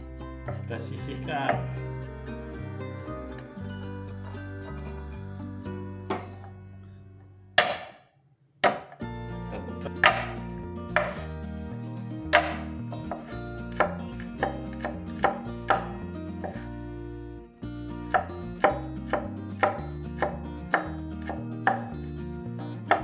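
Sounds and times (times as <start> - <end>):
knife chopping on wooden board: 7.6 - 8.0, 8.6 - 9.0, 10.0 - 11.3, 12.3 - 16.6, 18.1 - 21.9.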